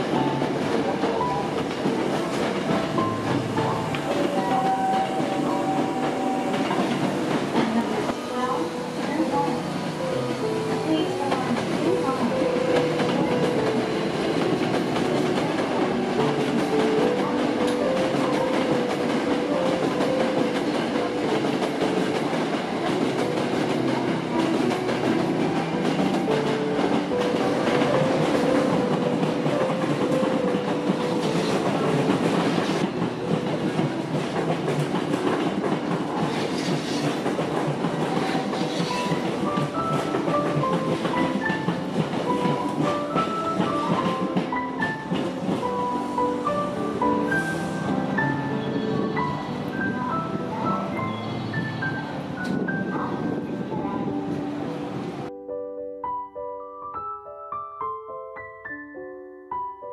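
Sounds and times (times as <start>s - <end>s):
electric trains on tracks: 0.0s - 55.3s
instrumental background music: 37.7s - 59.9s.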